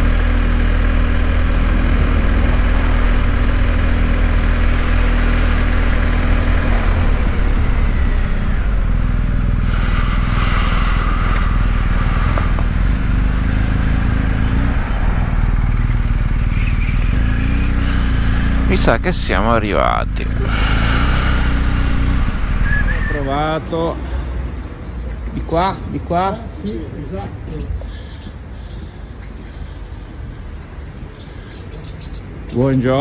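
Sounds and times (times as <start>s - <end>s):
motorcycle engine running: 0.0s - 23.4s.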